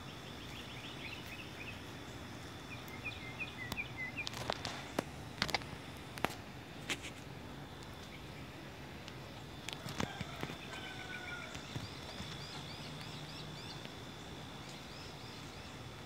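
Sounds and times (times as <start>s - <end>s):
rapid high bird chirps: 0.0s - 5.0s.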